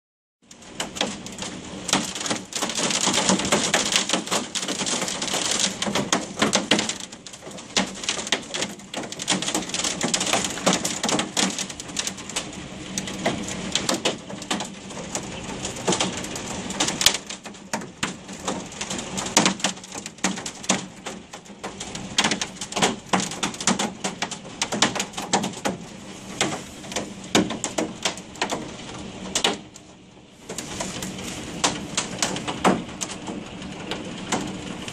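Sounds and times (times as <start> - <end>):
hail rattling on window: 0.5 - 34.9.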